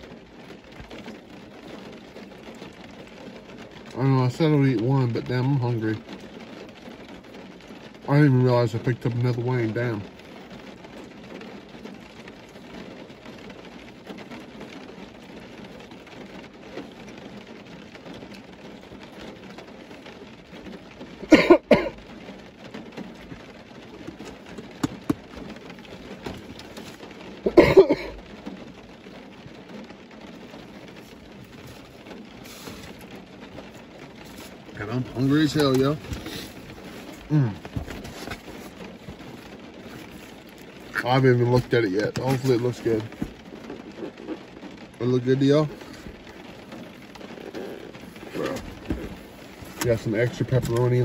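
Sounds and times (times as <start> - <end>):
loud coughs: 21.3 - 22.0, 27.5 - 28.2.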